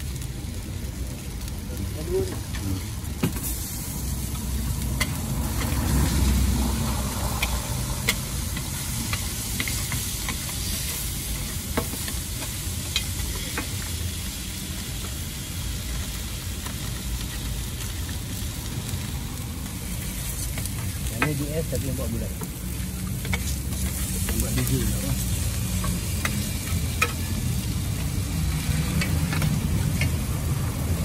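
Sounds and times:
patties sizzling on griddle: 0.0s - 31.0s
utensils clicking and tapping: 22.4s - 30.2s.

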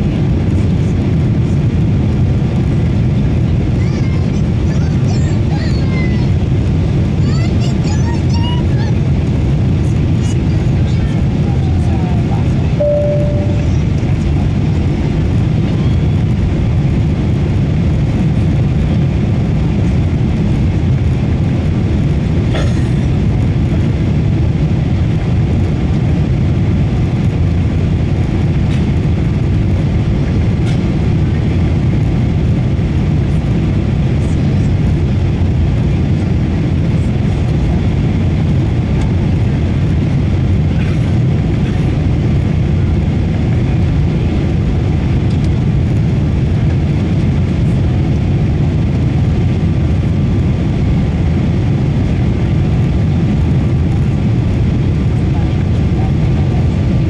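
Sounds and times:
airplane cabin rumble: 0.0s - 57.0s.

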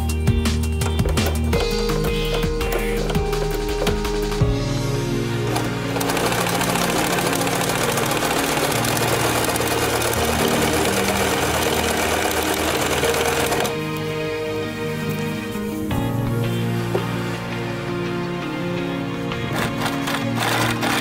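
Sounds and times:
background music: 0.0s - 21.0s
sewing machine stitching: 5.5s - 13.8s, 19.5s - 21.0s.

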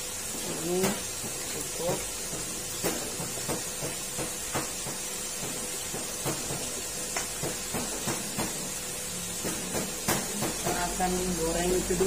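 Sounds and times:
food deep-frying in hot oil: 0.0s - 12.0s
oil popping and crackling: 0.2s - 12.0s.

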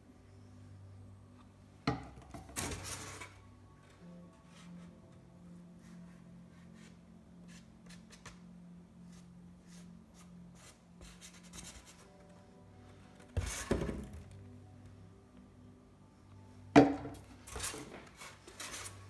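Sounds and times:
faint music: 0.0s - 19.0s
painting supplies scratching and tapping: 5.8s - 8.5s, 9.1s - 12.4s, 13.1s - 14.4s, 17.1s - 19.0s.

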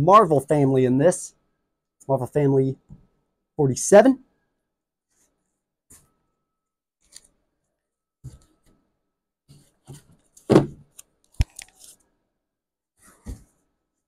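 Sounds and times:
book thud on counter: 10.5s - 10.8s.

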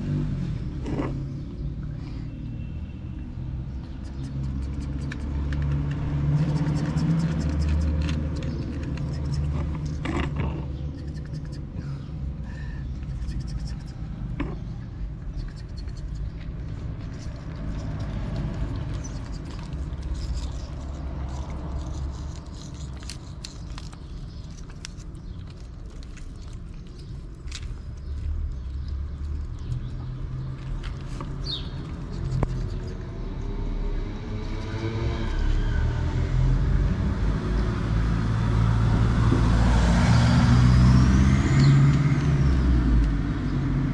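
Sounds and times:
low street rumble: 0.0s - 43.9s
motor vehicle approaching: 0.0s - 43.9s
light clicks and scrapes: 3.9s - 11.8s, 13.0s - 33.3s.

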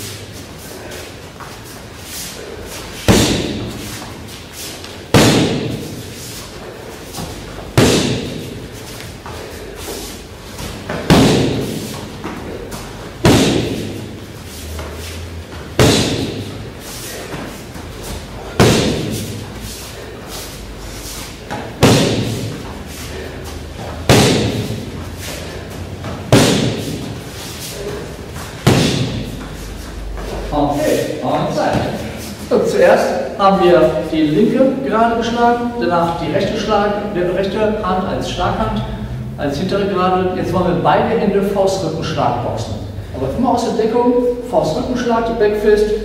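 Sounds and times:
boxing glove smacking focus mitt: 10.6s - 14.0s, 23.8s - 24.8s, 26.1s - 27.1s.

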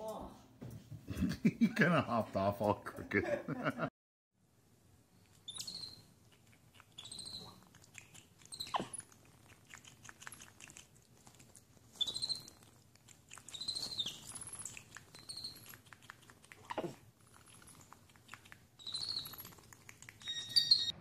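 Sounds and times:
monkeys squeaking: 5.5s - 6.1s, 6.9s - 9.1s, 12.0s - 12.6s, 13.3s - 21.0s.

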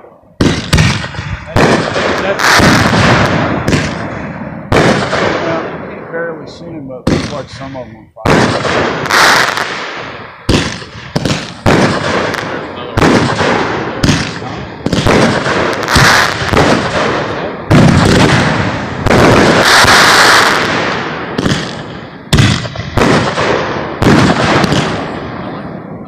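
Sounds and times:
firework launch reports and bursts: 0.0s - 26.0s
firework hiss: 17.8s - 21.8s.

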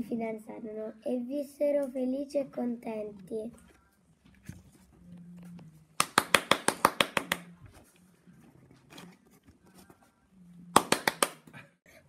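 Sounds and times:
hand clapping: 6.0s - 7.5s, 10.7s - 11.5s.

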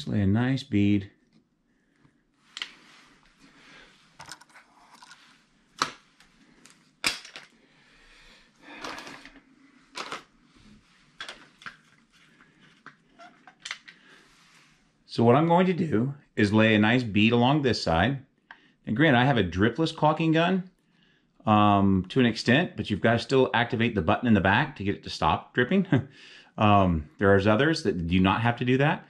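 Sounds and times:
quiet rustling: 8.9s - 15.6s.

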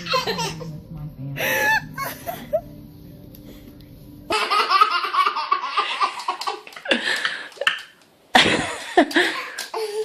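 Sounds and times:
toddler laughing hard: 4.3s - 6.7s.

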